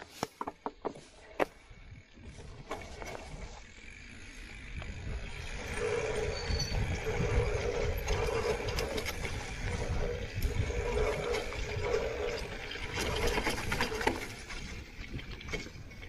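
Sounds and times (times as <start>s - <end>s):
bike tyre rumble: 0.0s - 16.0s
bike mechanical whine: 0.4s - 16.0s
wind on camera: 4.5s - 16.0s.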